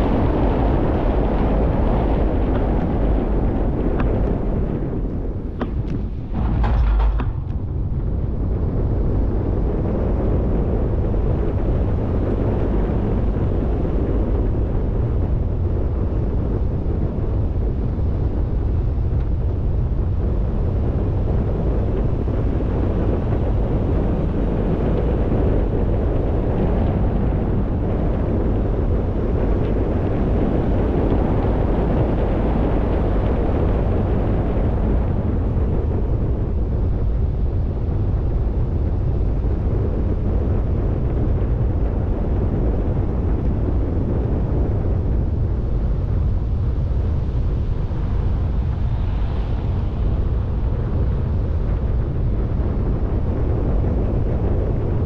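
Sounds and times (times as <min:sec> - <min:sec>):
deep engine rumble: 0:00.0 - 0:22.8.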